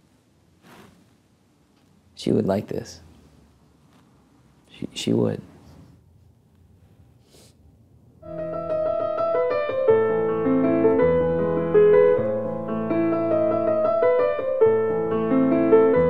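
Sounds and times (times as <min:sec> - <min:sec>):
slow piano music: 0:08.2 - 0:16.0.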